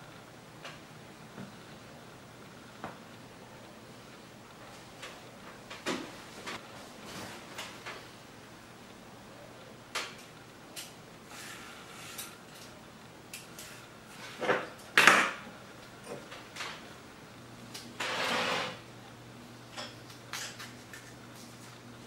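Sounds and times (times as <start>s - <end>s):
scraping rustle: 18.0s - 18.8s.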